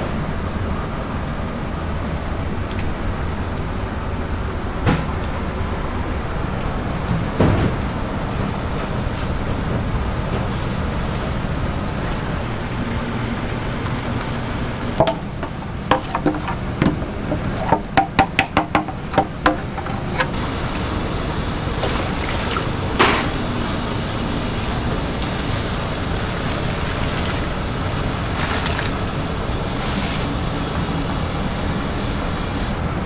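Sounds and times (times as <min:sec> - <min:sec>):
ladle scraping metal pot: 0:15.4 - 0:18.0, 0:18.8 - 0:20.4.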